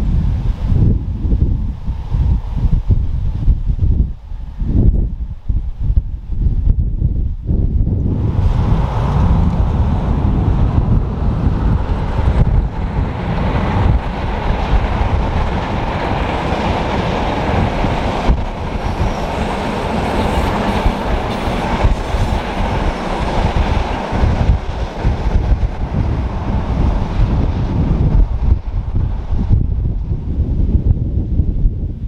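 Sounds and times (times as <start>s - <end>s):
train wheels rumbling on rail: 0.0s - 32.0s
train coaches clattering: 11.6s - 27.2s.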